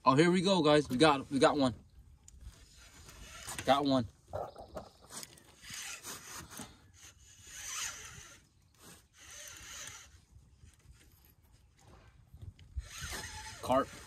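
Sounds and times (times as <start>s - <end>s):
fishing reel whirring: 2.6s - 3.7s, 4.4s - 11.2s, 12.7s - 14.0s.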